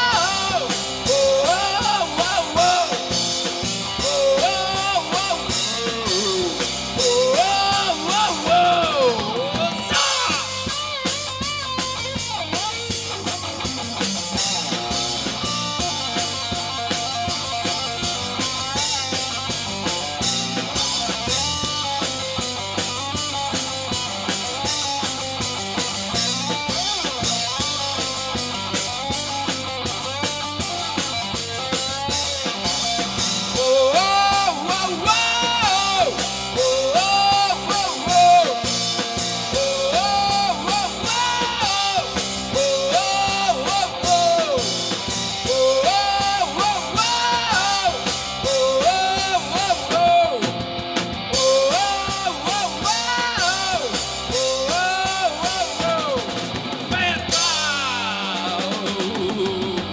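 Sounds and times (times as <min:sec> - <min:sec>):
lead vocal singing: 0:00.0 - 0:11.2, 0:33.3 - 0:50.6, 0:51.3 - 0:59.9
rock band playing: 0:00.0 - 0:59.9.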